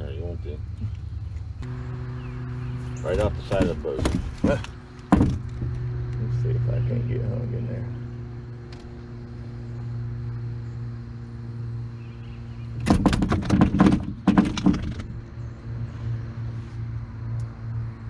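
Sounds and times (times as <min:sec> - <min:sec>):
steady low hum: 0:00.0 - 0:18.0
gear knocking on metal boat hull: 0:03.2 - 0:05.9, 0:12.8 - 0:15.2.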